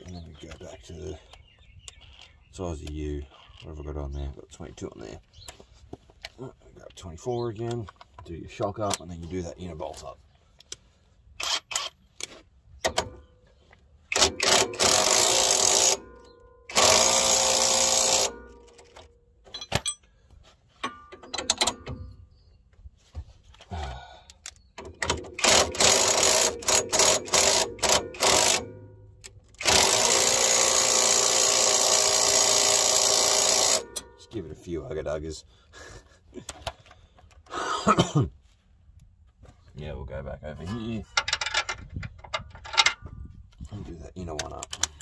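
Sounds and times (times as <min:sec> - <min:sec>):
impact wrench bursts: 0:14.1 - 0:19.0, 0:25.0 - 0:28.9, 0:29.6 - 0:34.1.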